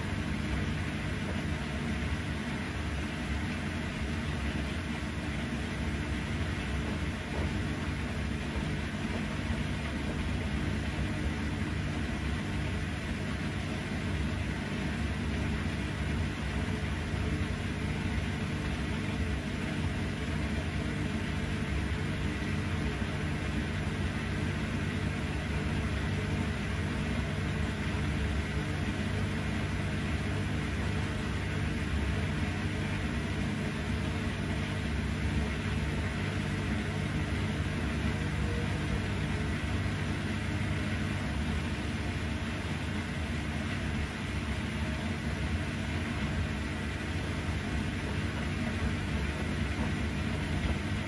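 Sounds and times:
washing machine drum tumbling: 0.0s - 13.4s.

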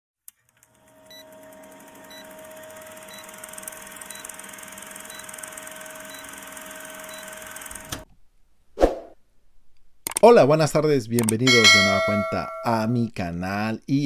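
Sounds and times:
film projector running: 0.3s - 8.0s.

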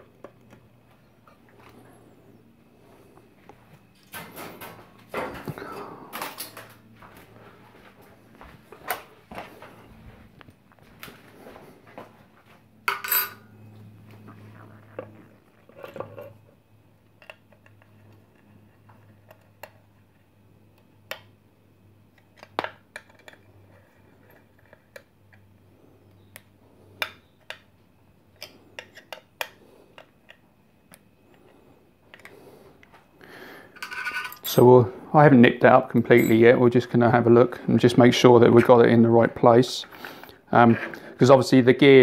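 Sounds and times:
faint steady hum: 0.0s - 42.0s
metallic clinks of screws and key: 36.1s - 36.5s.

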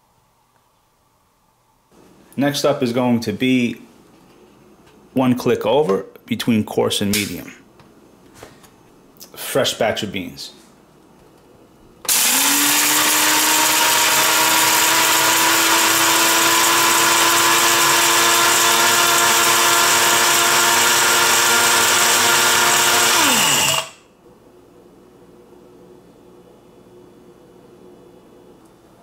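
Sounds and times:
blade grinder chopping coffee beans: 12.1s - 24.0s.

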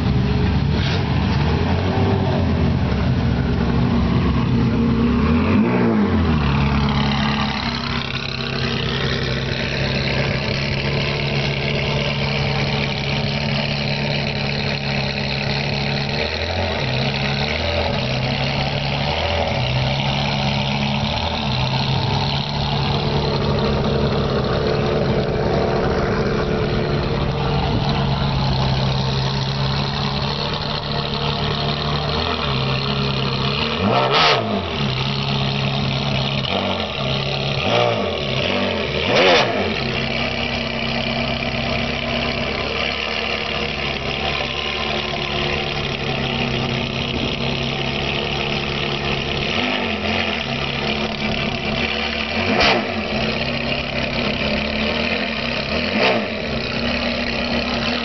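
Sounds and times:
car engine at low revs: 0.0s - 58.0s.

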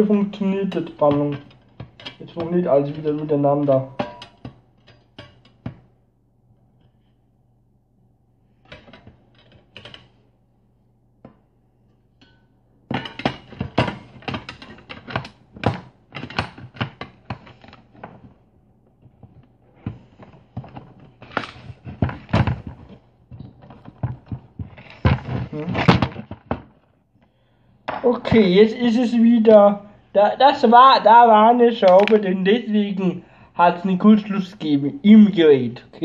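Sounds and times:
electronic unit clattering on workbench: 12.2s - 18.4s.

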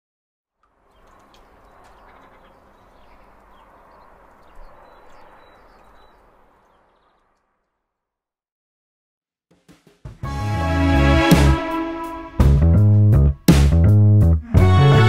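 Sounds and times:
birds chirping: 0.6s - 7.8s.

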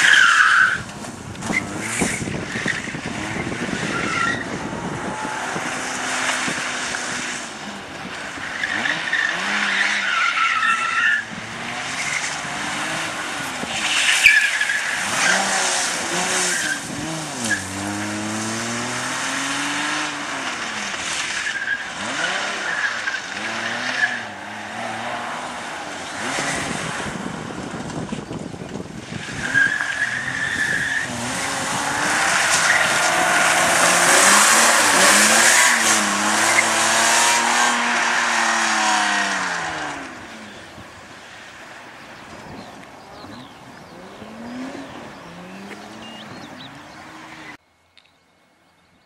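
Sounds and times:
rally car engine revving: 0.0s - 40.8s, 43.0s - 47.6s
tyres squealing: 29.3s - 39.8s.

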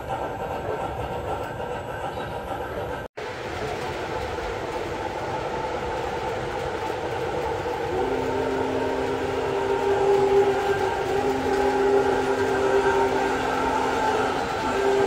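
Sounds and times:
model train rolling rumble: 0.0s - 15.0s
steam locomotive running sounds: 0.0s - 15.0s
chime whistle: 7.8s - 15.0s.

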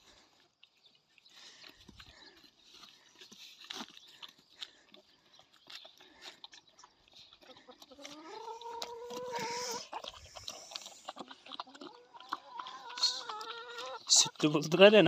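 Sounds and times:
puppies lapping and chewing: 0.0s - 15.0s
hen calling: 11.8s - 14.4s.

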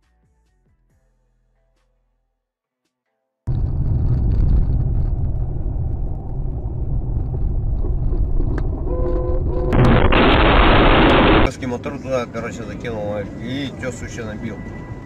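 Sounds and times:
car engine rumble: 3.5s - 11.5s
loud rushing noise: 9.7s - 11.5s.

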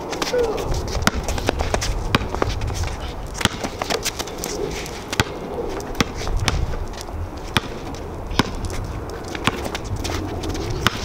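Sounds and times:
basketball bouncing on concrete: 0.1s - 4.5s, 5.1s - 11.0s.

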